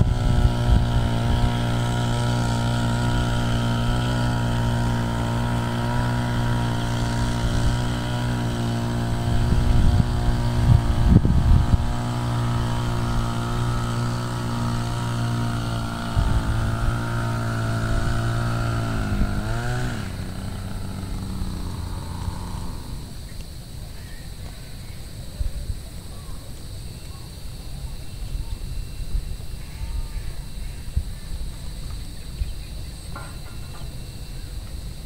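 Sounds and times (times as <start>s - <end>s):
engine running and winding down: 0.0s - 23.7s
low rumbles: 0.0s - 23.7s.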